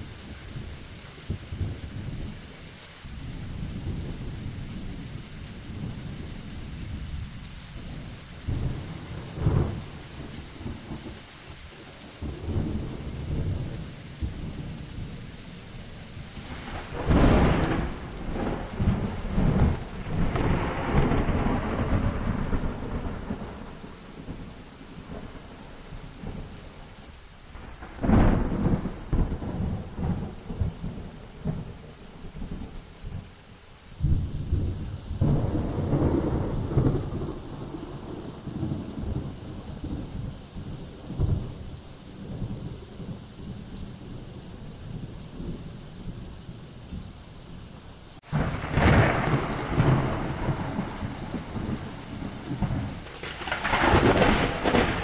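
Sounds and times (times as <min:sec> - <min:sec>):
rain falling: 0:00.0 - 0:55.0
rolling thunder: 0:03.1 - 0:11.2, 0:12.1 - 0:15.3, 0:16.2 - 0:26.5, 0:27.5 - 0:33.2, 0:34.0 - 0:47.2, 0:48.2 - 0:55.0
sharp thunder cracks: 0:16.4 - 0:23.8, 0:35.2 - 0:40.0, 0:48.2 - 0:55.0.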